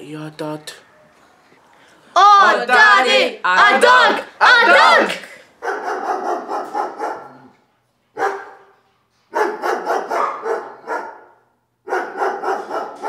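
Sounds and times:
dog barking: 3.7s - 7.5s, 8.2s - 13.0s.

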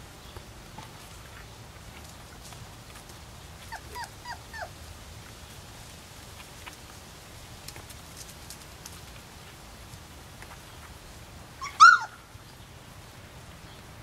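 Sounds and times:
puppy whimpering: 3.6s - 4.7s, 11.6s - 12.1s.

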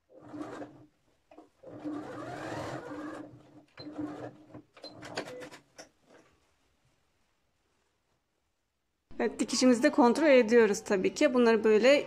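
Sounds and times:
sewing machine stitching: 0.1s - 5.6s.

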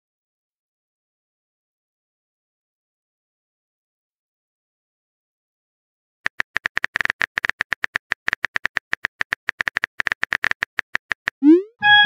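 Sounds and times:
keyboard typing clicks: 6.2s - 11.7s.

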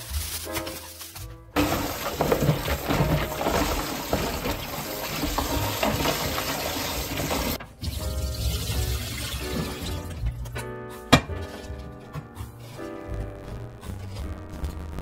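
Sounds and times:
hands rinsing vegetables: 0.0s - 10.6s
background music: 0.0s - 15.0s
tap water splashing into tray: 1.6s - 10.1s.

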